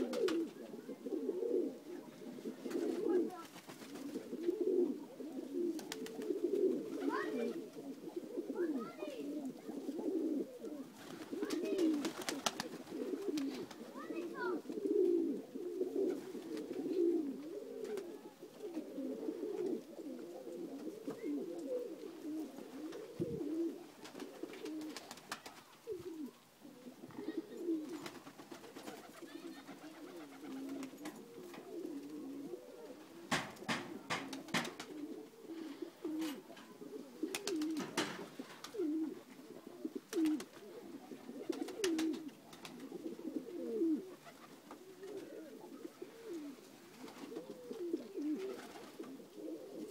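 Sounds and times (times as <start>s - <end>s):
pigeons cooing: 0.0s - 49.9s.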